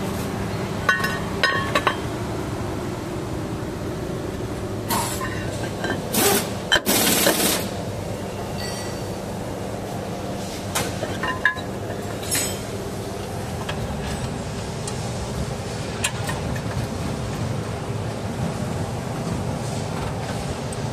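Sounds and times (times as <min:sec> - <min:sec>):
steady low hum: 0:00.0 - 0:20.9
sharp metal clinks: 0:08.6 - 0:09.2.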